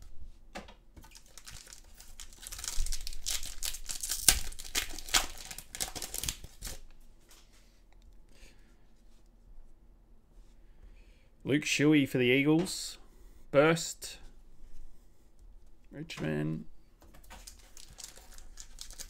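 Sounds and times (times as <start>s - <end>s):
foil wrapper tearing and crinkling: 1.0s - 6.8s, 17.2s - 19.0s.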